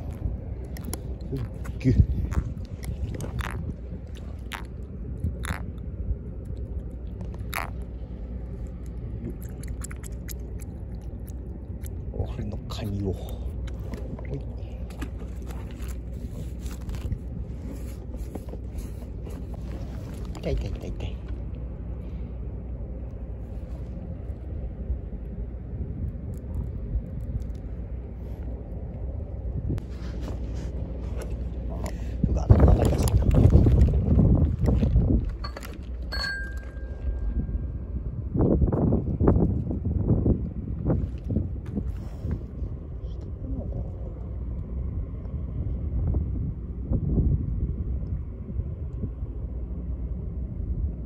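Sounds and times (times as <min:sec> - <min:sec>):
faint hum: 0:00.0 - 0:51.0
steady low rumble: 0:00.0 - 0:51.0
crunching scrapes of fish handling: 0:14.8 - 0:20.5.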